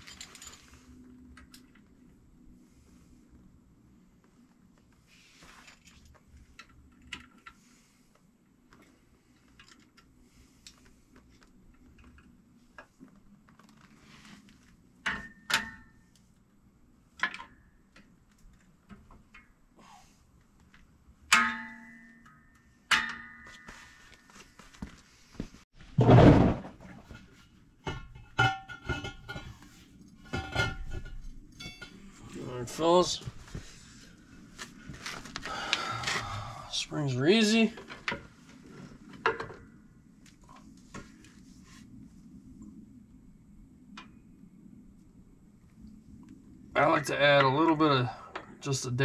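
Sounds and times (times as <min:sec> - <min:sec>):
sharp ringing metal strikes: 0:21.3 - 0:23.9
heavy thud: 0:25.9 - 0:26.9
metal clanks of brake parts: 0:30.3 - 0:32.1.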